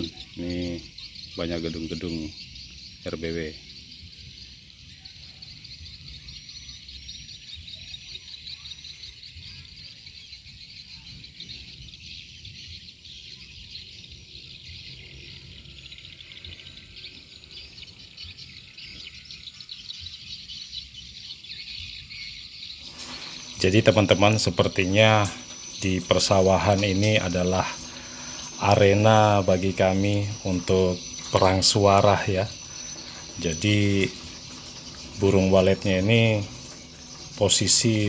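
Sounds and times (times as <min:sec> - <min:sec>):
high shrill hiss: 0:22.8 - 0:38.0
swiftlets chirping: 0:22.8 - 0:38.0.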